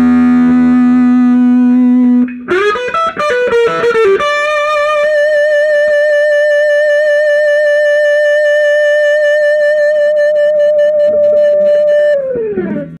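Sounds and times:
electric guitar sustained note: 0.0s - 13.0s.

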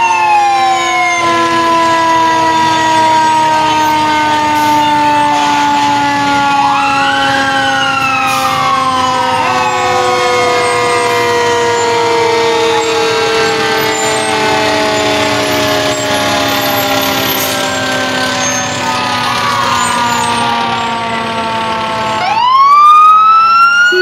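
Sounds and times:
long held warning tones: 0.0s - 24.0s
siren wailing: 0.0s - 24.0s.

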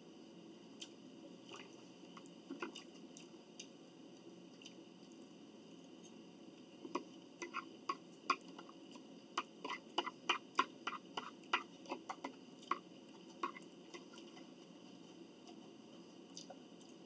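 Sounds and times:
wet mouth clicks from chewing: 16.3s - 17.0s.

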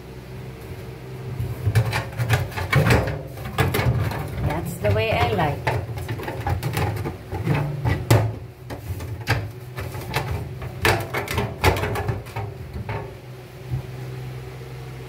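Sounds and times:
low steady hum: 0.0s - 15.0s
hard objects clattering: 1.5s - 13.2s.

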